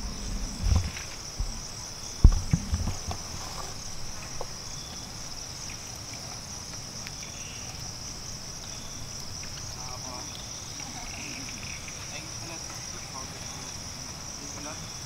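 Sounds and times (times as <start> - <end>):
dull low thumps: 0.0 - 4.2
insect chorus drone: 0.0 - 15.0.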